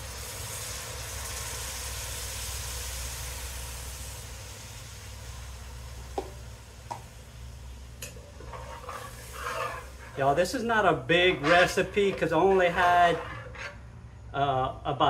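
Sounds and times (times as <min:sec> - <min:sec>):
stock sizzling in a hot pot: 0:00.0 - 0:14.0
steady low hum: 0:03.0 - 0:15.0.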